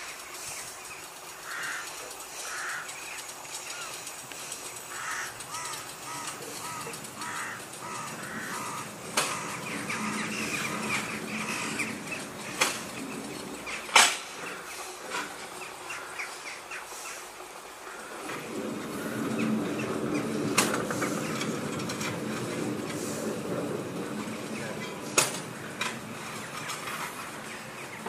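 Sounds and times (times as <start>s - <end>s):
crow-like bird caws: 1.4s - 3.0s, 4.9s - 12.6s, 15.8s - 16.9s
sharp knocks: 7.2s - 11.1s.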